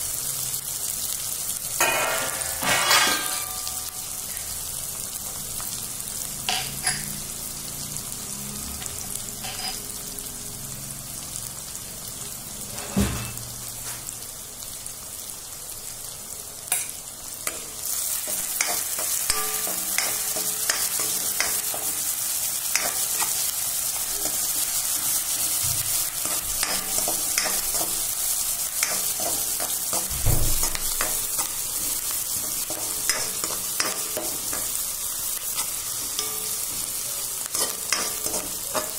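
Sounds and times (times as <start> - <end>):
onions sizzling in hot oil: 0.0 - 38.9
spatula scraping a pan: 9.4 - 9.9.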